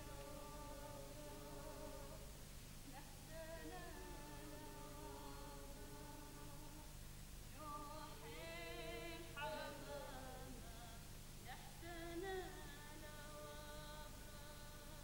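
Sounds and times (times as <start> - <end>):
person singing unaccompanied: 0.0 - 15.0
steady low hum: 0.0 - 15.0.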